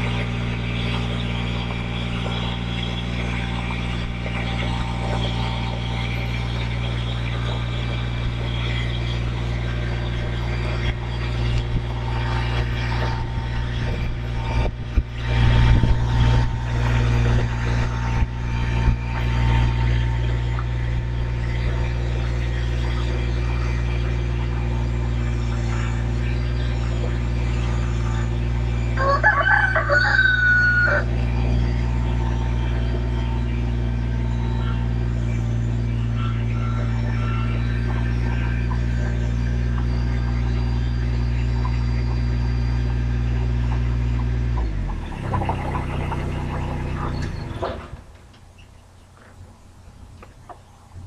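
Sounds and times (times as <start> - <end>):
engine humming: 0.0 - 51.0
rooster crowing: 29.0 - 31.2.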